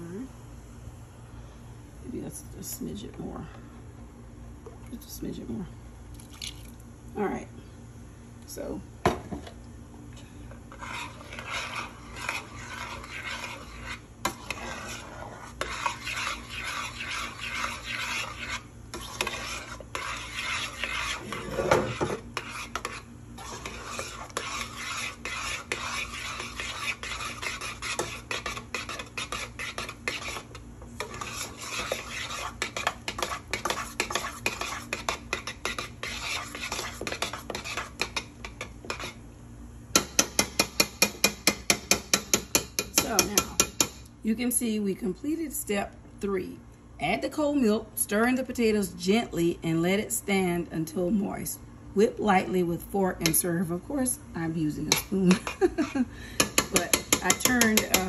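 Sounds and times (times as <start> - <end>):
spoon scraping metal pot: 10.6 - 39.2, 40.0 - 44.0, 54.8 - 58.0.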